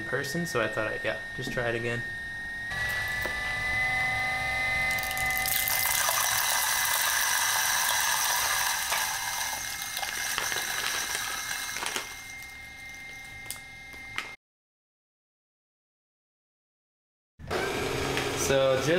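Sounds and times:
electric coffee grinder motor whine: 0.5s - 14.4s, 17.5s - 18.9s
coffee beans grinding crackle: 2.7s - 3.7s, 4.9s - 13.6s.

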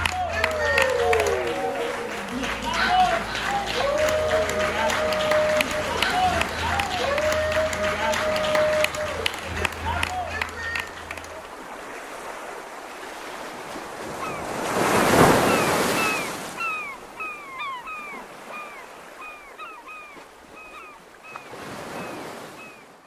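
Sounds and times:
ocean surf breaking: 0.0s - 23.0s.

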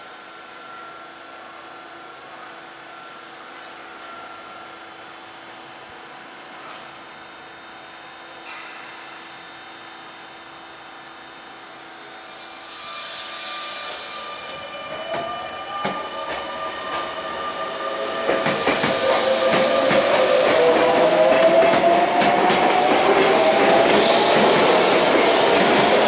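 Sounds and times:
electric train motor whine: 12.1s - 26.0s.

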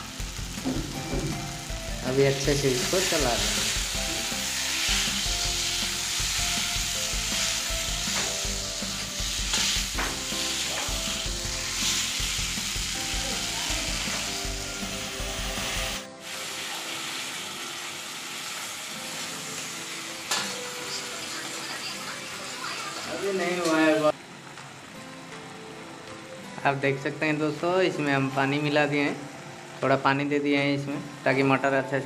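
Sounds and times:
vegetables sizzling in hot oil: 0.0s - 24.2s.

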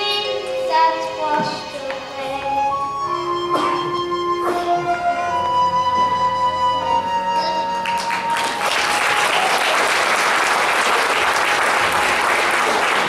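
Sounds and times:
held music notes: 0.0s - 9.6s
audience applauding: 7.7s - 13.0s.

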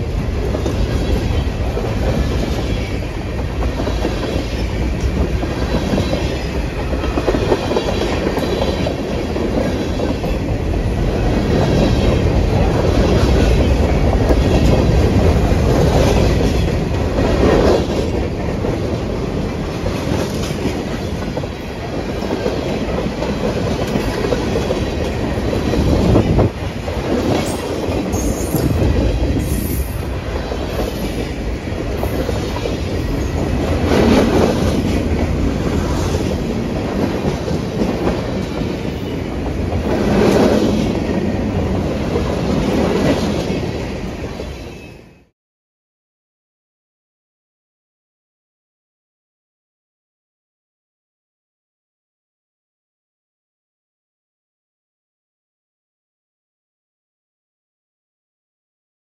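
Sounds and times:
freight train rumble: 0.0s - 45.3s.

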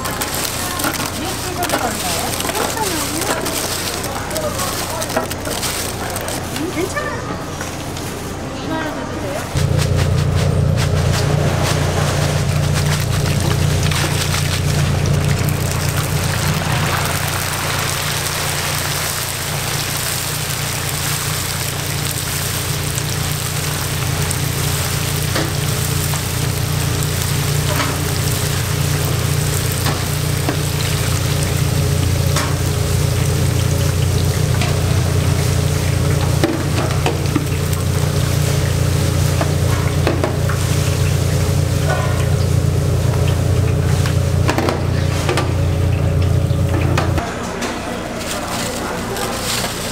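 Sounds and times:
steady low hum: 0.0s - 49.9s
oil sizzling hiss: 9.6s - 46.6s.

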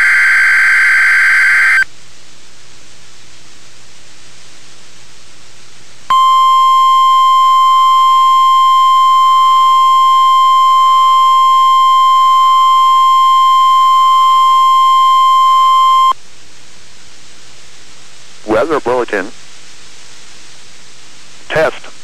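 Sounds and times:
steady high alarm tone: 0.0s - 1.8s, 6.1s - 16.2s
radio static hiss: 0.0s - 1.9s, 17.1s - 22.0s.

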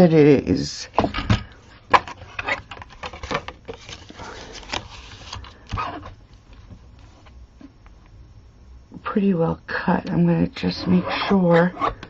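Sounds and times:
paper rustling: 2.2s - 7.4s.

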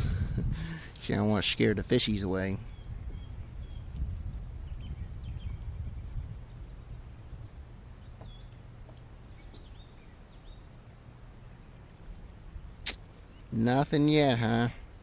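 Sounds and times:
low uneven rumble: 0.0s - 15.0s
faint bird chirps: 2.6s - 4.0s, 4.6s - 8.7s, 9.3s - 10.8s.

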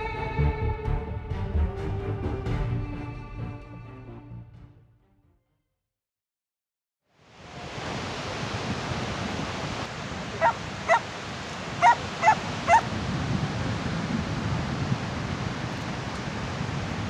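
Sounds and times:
rushing background noise: 9.5s - 12.9s
dog barking: 10.4s - 11.0s, 11.8s - 12.8s.

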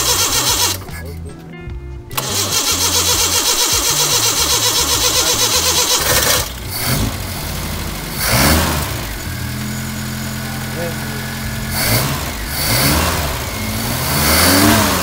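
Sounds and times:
engine cranking on starter motor: 0.0s - 1.0s, 2.1s - 15.0s
car engine revving and idling: 0.0s - 1.1s, 2.1s - 15.0s.

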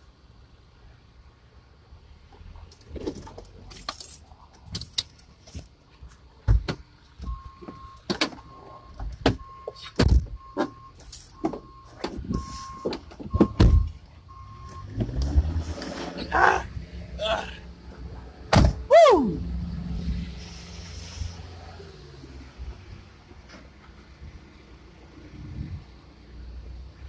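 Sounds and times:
clunks and rattles in van cab: 6.4s - 14.0s, 18.5s - 18.9s.

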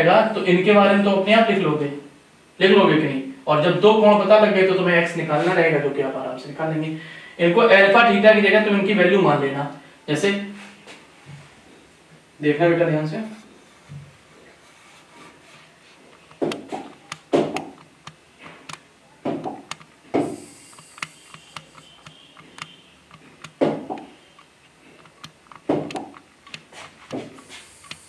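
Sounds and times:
writing tool tapping on board: 16.4s - 17.8s.

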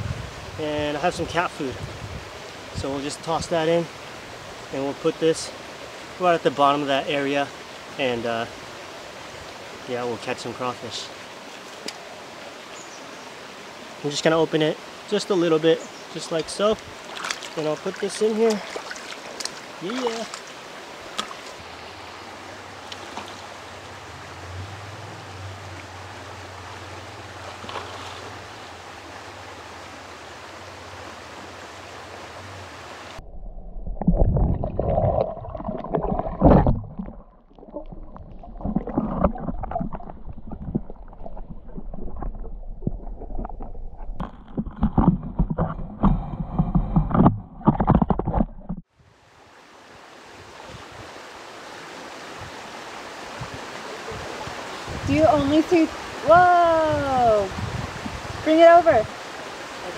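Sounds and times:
river water rushing: 0.0s - 33.2s, 49.1s - 59.9s
underwater sloshing and knocks: 33.2s - 48.9s.

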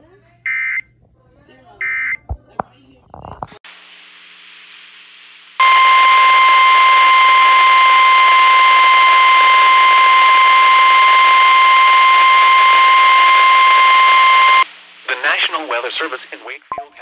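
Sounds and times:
faint radio static: 0.0s - 17.0s
loud steady alarm tone: 5.6s - 14.7s.

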